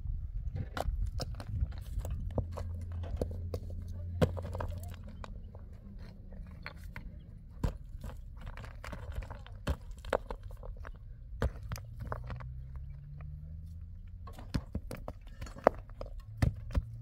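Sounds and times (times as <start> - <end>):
low steady rumble: 0.0 - 17.0
stones knocking together: 0.5 - 13.3, 14.2 - 17.0
footsteps crunching on stony ground: 0.6 - 13.9.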